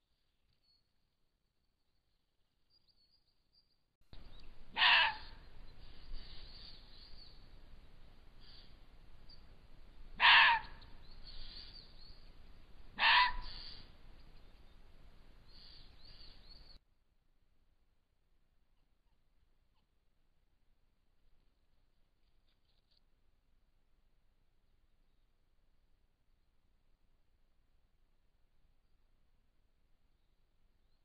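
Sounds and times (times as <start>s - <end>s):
faint forest background: 0.0s - 31.0s
loud animal calls: 4.7s - 5.5s, 10.2s - 11.5s, 13.0s - 13.9s.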